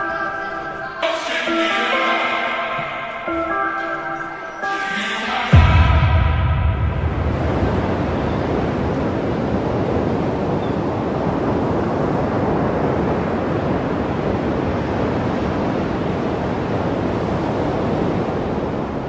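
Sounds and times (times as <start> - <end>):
sea surf: 0.2 - 19.0
wind: 5.6 - 19.0.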